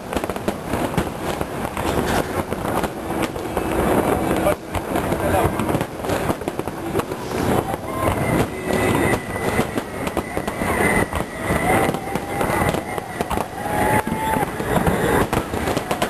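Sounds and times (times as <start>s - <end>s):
continuous rumble: 0.0s - 16.0s
fireworks bursts banging and crackling: 0.0s - 16.0s
high steady whistle: 7.0s - 16.0s.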